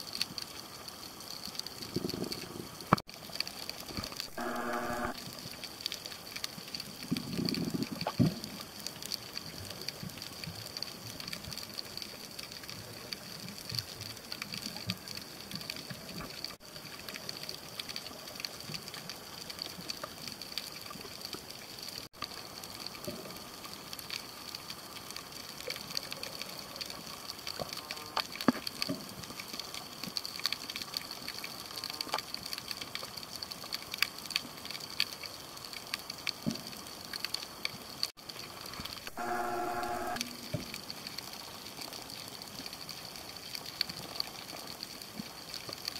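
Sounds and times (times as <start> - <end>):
faint crackling: 0.3 - 8.8, 34.4 - 45.8
thin high whine: 4.0 - 5.2, 39.0 - 40.8.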